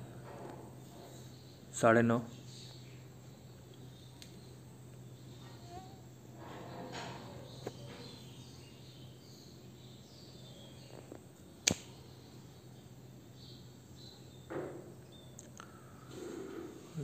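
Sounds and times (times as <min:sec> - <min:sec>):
steady low hum: 0:00.0 - 0:17.0
sharp click: 0:11.6 - 0:11.9.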